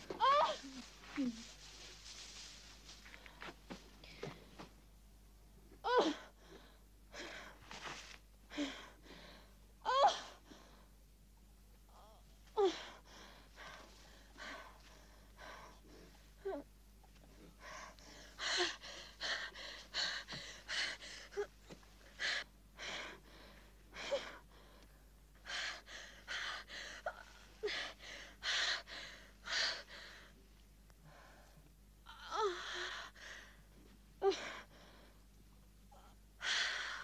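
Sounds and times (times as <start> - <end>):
woman moaning cries: 0.1 - 1.4, 9.8 - 10.4
woman gasping and panting: 0.1 - 1.5, 11.9 - 16.7, 17.5 - 24.8, 25.4 - 30.3.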